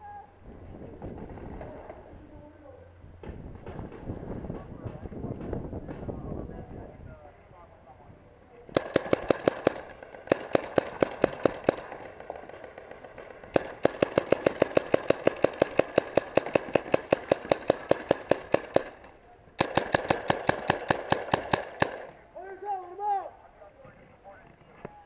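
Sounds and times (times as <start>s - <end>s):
paintball markers firing: 8.7s - 22.2s.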